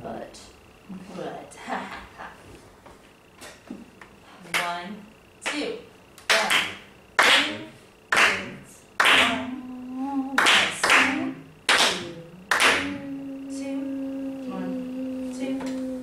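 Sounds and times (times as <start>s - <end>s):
hand claps: 6.2s - 9.5s, 10.4s - 13.0s
held low note: 9.4s - 10.4s, 11.2s - 16.0s.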